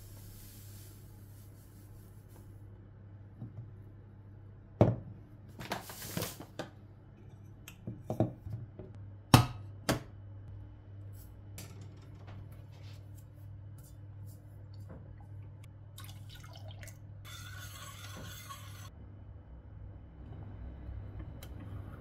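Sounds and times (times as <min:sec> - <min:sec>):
low steady hum: 0:06.6 - 0:17.6.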